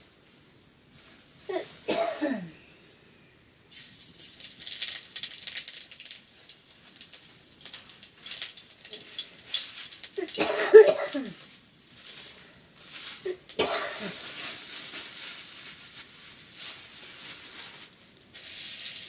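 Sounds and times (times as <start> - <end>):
cough-like voice sound: 1.5 - 2.6, 10.2 - 11.4, 13.3 - 14.2
food sizzling in hot oil: 3.7 - 10.4, 18.3 - 19.0.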